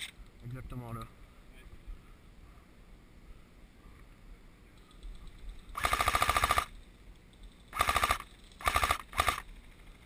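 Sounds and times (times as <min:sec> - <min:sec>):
airsoft rifle automatic fire: 0:05.7 - 0:06.7, 0:07.7 - 0:09.6.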